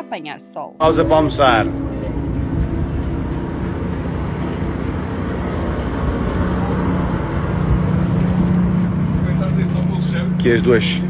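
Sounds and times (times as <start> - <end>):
boat engines rumbling: 0.8 - 11.0
steady low hum: 0.8 - 11.0
water noise: 0.8 - 11.0
wind: 0.8 - 11.0.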